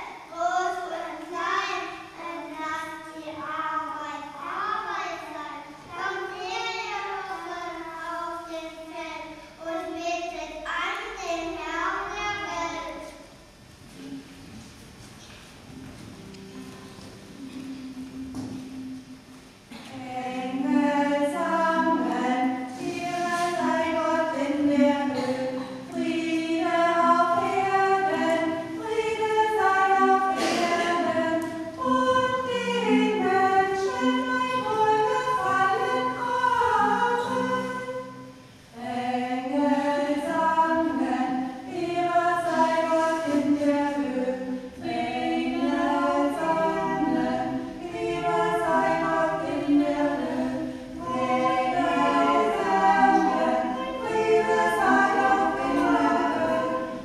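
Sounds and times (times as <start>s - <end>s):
group of voices singing: 19.7s - 57.0s.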